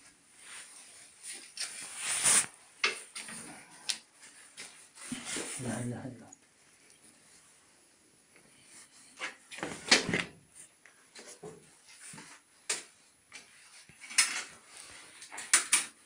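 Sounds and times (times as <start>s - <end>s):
rustling on crinkly sheet: 0.3s - 5.9s.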